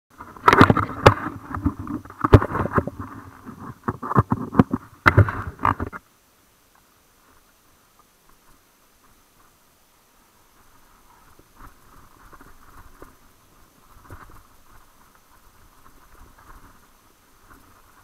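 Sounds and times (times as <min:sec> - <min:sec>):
knocks and rubbing on microphone: 0:00.2 - 0:06.0.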